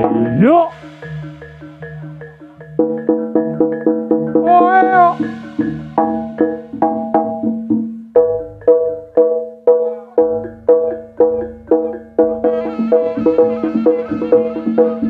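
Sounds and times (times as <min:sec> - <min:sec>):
low ringing tone: 0:00.0 - 0:07.4
higher melody instrument: 0:00.0 - 0:07.7, 0:09.2 - 0:15.0
bronze gamelan percussion: 0:00.0 - 0:15.0
drum: 0:00.0 - 0:15.0.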